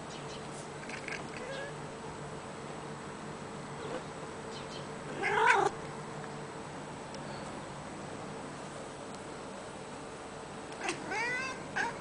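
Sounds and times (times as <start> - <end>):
cat meowing: 1.4 - 1.8, 5.1 - 5.8, 10.8 - 12.0.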